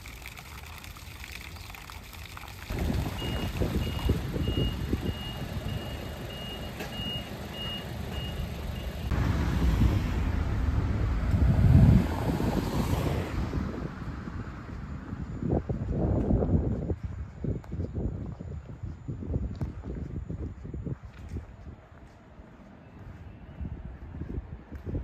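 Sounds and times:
traffic rumble: 0.0 - 25.0
wind on microphone: 2.7 - 5.8, 9.1 - 22.0, 23.0 - 25.0
reversing vehicle beep: 3.0 - 9.1.

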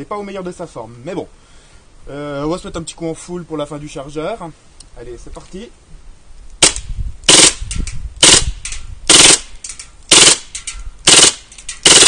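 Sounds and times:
airsoft gun firing bursts: 6.6 - 7.6, 8.2 - 9.5, 10.1 - 10.5, 11.1 - 12.0.

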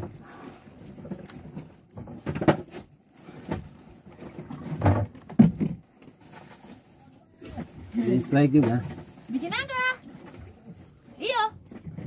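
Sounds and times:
dull knocks and thumps: 1.0 - 6.5, 8.4 - 10.6.

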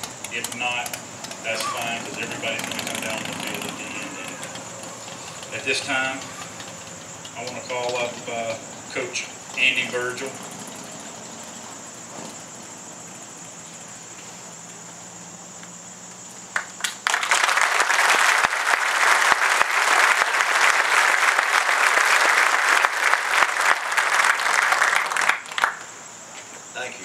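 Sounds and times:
crowd applauding: 0.0 - 10.3, 16.5 - 26.0.

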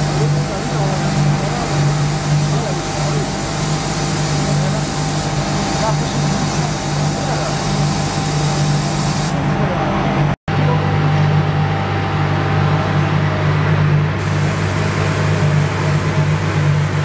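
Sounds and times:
paint spray hiss: 0.0 - 9.4, 14.2 - 15.8
machine humming: 0.0 - 17.0.

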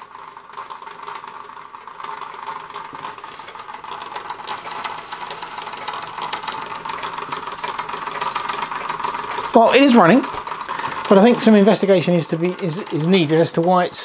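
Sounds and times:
toy steam engine rattling tick: 0.0 - 14.0
steady steam hiss: 4.2 - 6.3.

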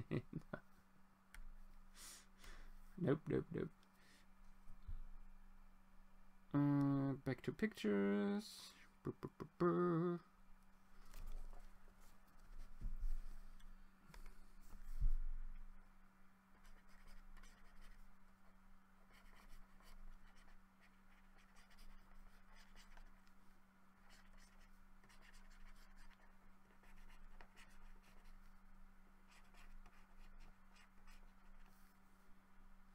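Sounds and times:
steady low hum: 0.0 - 32.9
stylus scratching on tablet: 16.6 - 18.1, 19.0 - 23.2, 24.0 - 28.5, 29.2 - 31.8.

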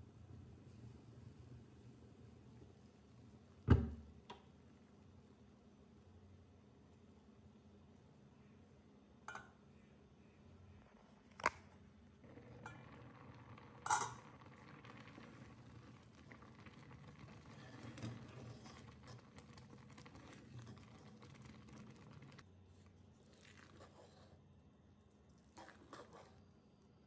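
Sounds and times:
wooden spatula stirring rice: 12.7 - 24.4, 25.6 - 26.5
metal lid clinking on pot: 13.8 - 14.3.

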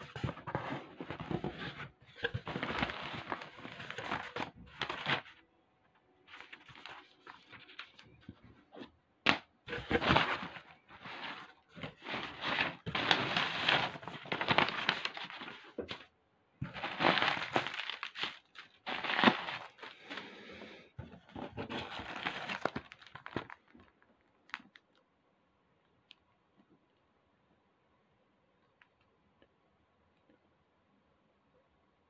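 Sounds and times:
plastic packaging crinkling: 0.0 - 5.4, 6.3 - 8.3, 9.7 - 20.4, 21.2 - 25.0.

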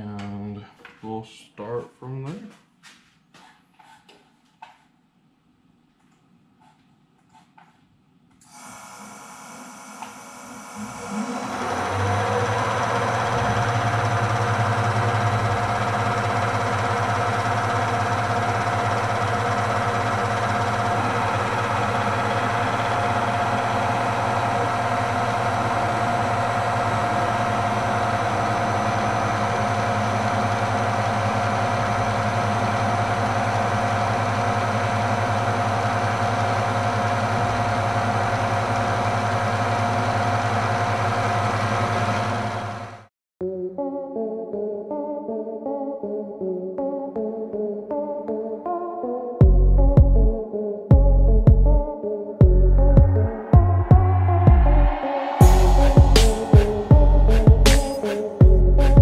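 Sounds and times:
milling machine hum and whine: 8.5 - 43.0, 54.2 - 59.0.

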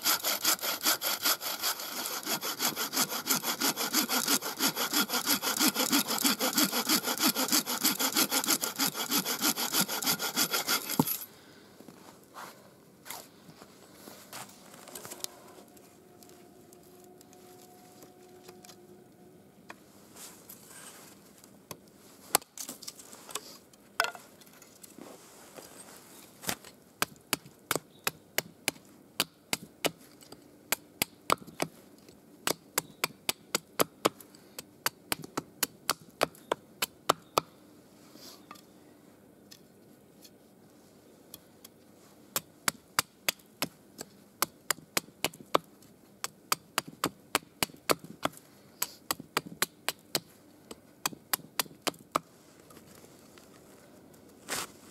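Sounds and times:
hatchet chopping wood: 0.1 - 11.2, 27.0 - 30.0, 32.4 - 34.2, 34.8 - 37.5, 42.4 - 52.3.

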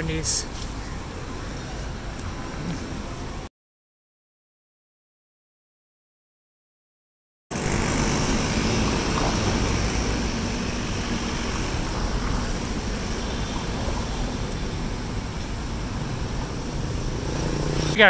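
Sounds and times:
road noise: 0.0 - 3.5, 7.5 - 18.0
vehicle engines running: 7.5 - 18.0.

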